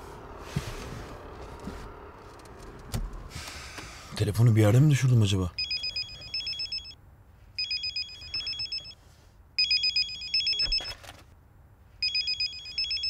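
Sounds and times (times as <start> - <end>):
phone trilling ringtone: 5.6 - 7.0, 7.6 - 9.0, 9.6 - 11.0, 12.0 - 13.0.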